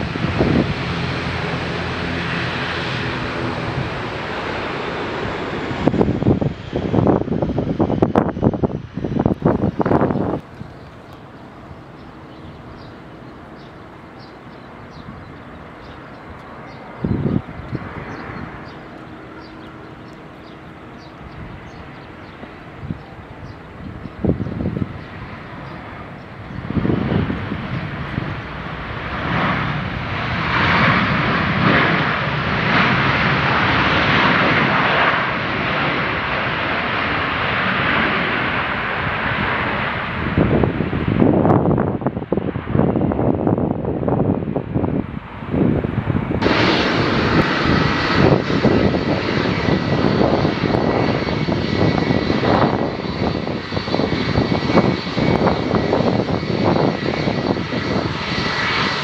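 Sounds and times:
distant jet plane rumble: 0:00.0 - 0:59.0.

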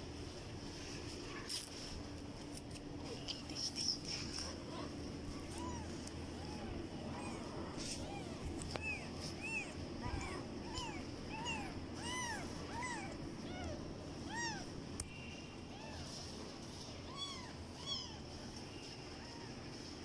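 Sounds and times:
kittens mewing: 0:03.9 - 0:14.8, 0:17.0 - 0:18.3.

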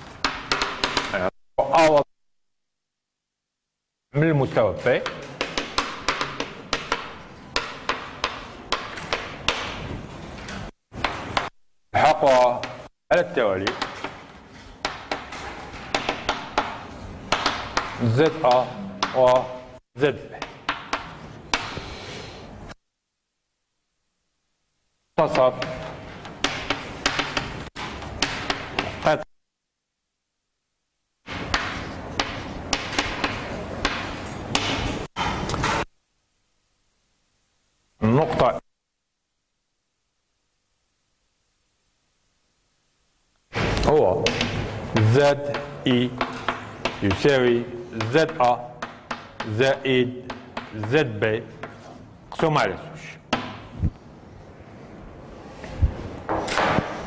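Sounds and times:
chalk tapping on blackboard: 0:00.1 - 0:01.2, 0:05.0 - 0:09.9, 0:11.0 - 0:11.6, 0:13.6 - 0:19.5, 0:20.4 - 0:22.0, 0:25.3 - 0:29.1, 0:31.3 - 0:34.8, 0:44.2 - 0:52.0
chalk scratching strokes: 0:51.6 - 0:52.1.

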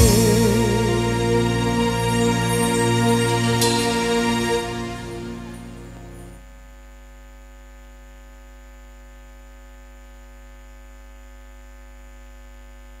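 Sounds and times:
music notes: 0:00.0 - 0:06.4.

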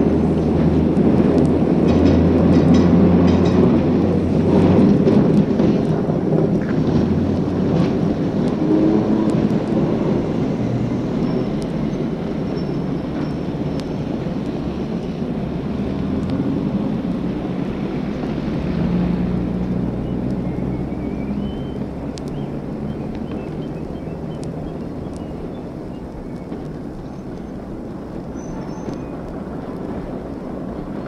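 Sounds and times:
traffic rumble: 0:00.0 - 0:31.0
sharp clicks: 0:22.1 - 0:25.4.

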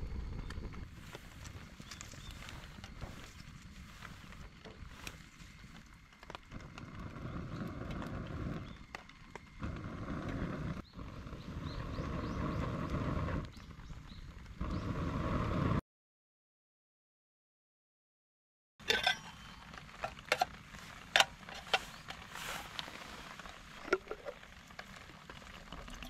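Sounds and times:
campfire crackling and hissing: 0:00.0 - 0:15.8, 0:18.8 - 0:26.0
rain patter: 0:19.8 - 0:26.0.

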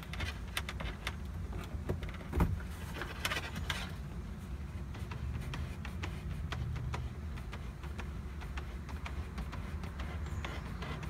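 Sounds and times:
cable clicking and scraping: 0:00.0 - 0:04.1.

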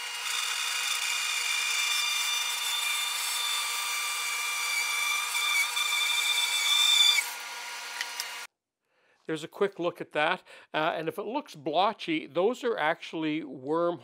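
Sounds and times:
bandsaw cutting wood with whine: 0:00.0 - 0:08.5.

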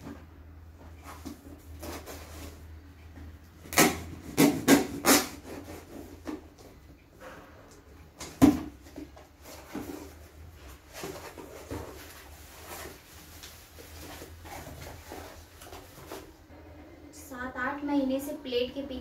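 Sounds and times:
cardboard scraping and rustling: 0:00.9 - 0:02.6, 0:08.6 - 0:16.5
cutter slitting packing tape: 0:03.6 - 0:05.8.

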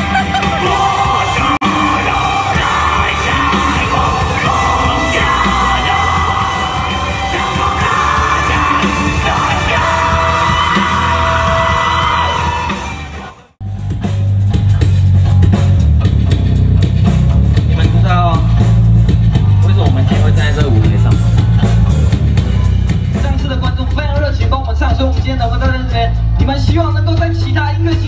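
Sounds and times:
singer shouting: 0:00.0 - 0:13.5
live rock band playing: 0:00.0 - 0:28.0.

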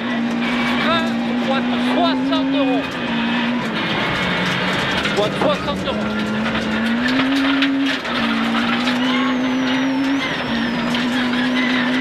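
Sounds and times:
rally car engine accelerating: 0:00.0 - 0:12.0
gravel clattering against underbody: 0:03.6 - 0:09.2.

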